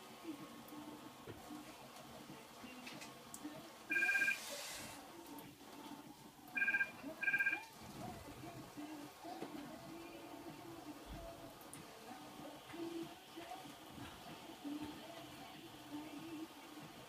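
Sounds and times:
electronic two-tone beeps: 3.9s - 4.4s, 6.6s - 7.6s.

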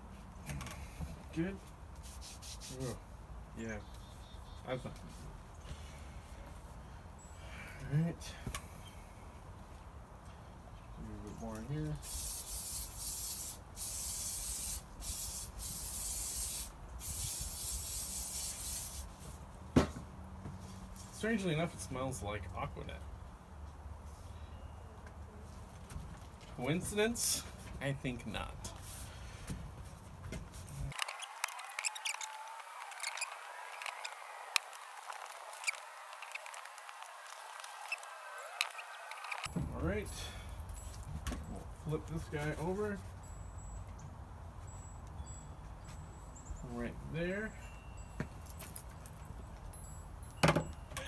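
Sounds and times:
aerosol can hissing: 12.0s - 19.1s
faint squeaky chirping: 24.2s - 25.5s, 30.8s - 39.6s, 42.4s - 51.0s.

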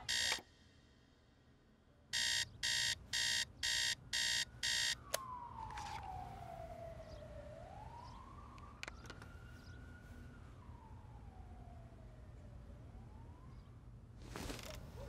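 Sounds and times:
alarm clock beeping: 0.0s - 0.4s, 2.2s - 5.0s
alarm switch click: 0.0s - 0.4s
emergency siren wailing: 0.0s - 0.4s, 2.2s - 14.1s.

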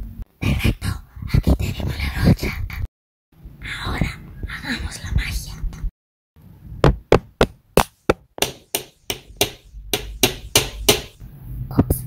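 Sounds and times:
brush tapping on microphone: 6.9s - 11.2s.

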